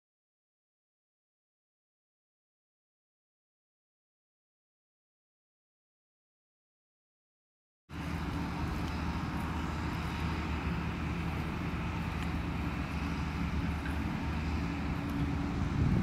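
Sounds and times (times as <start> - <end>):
low engine drone: 7.9 - 16.0.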